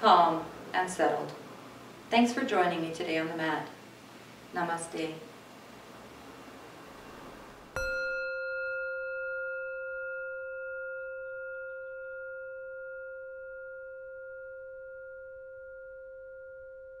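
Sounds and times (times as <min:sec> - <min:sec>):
struck bell ringing: 0:07.8 - 0:17.0.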